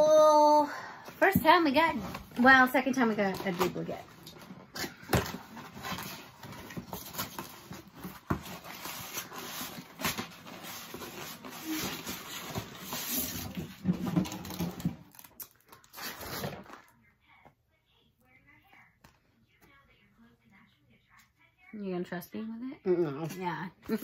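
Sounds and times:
packaging crinkling: 0:05.0 - 0:17.0.

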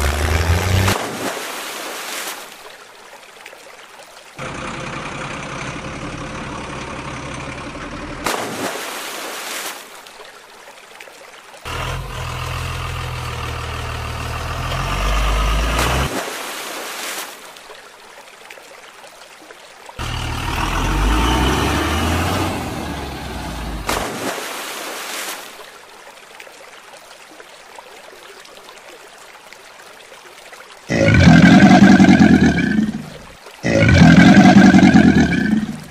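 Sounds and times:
heavy truck engine rising: 0:00.0 - 0:01.0, 0:11.7 - 0:16.1, 0:20.0 - 0:23.9.

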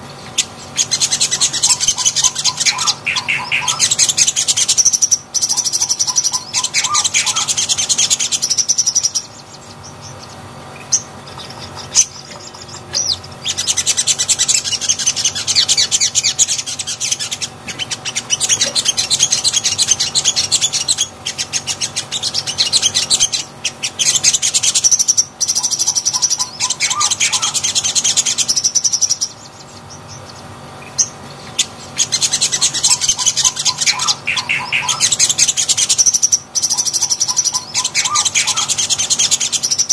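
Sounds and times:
sunbird chirping trills: 0:00.0 - 0:39.9.

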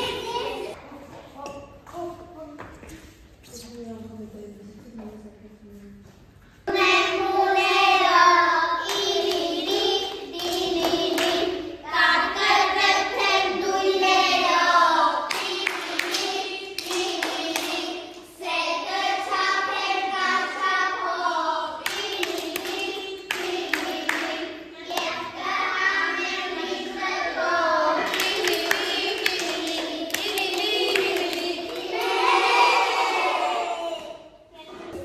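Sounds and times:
children singing: 0:00.0 - 0:00.8, 0:06.7 - 0:34.4
hand claps: 0:21.8 - 0:24.4, 0:28.0 - 0:32.2.

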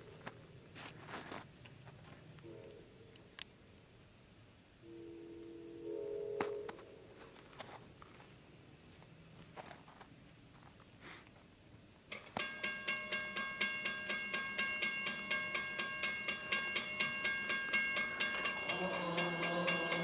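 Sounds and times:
locomotive horn: 0:02.4 - 0:02.8, 0:04.8 - 0:06.8, 0:18.2 - 0:20.0
crossing bell ringing: 0:12.1 - 0:20.0.

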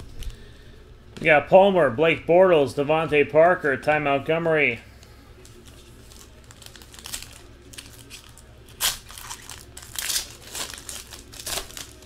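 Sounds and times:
foil wrapper crinkling and tearing: 0:05.4 - 0:12.0.

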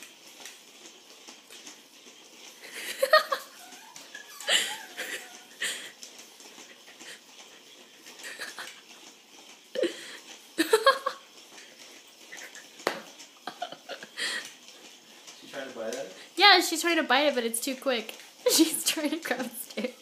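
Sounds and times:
small dog huffing and yipping: 0:03.5 - 0:05.8.

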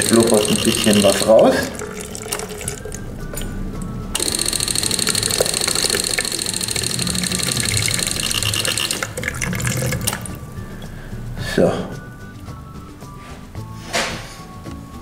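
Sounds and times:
electric fuel pump chattering: 0:00.0 - 0:10.7.

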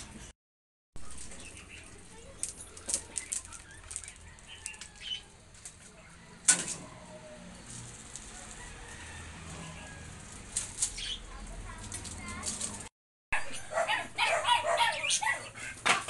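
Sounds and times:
leaves rustling against phone: 0:01.0 - 0:06.0, 0:07.5 - 0:12.9.

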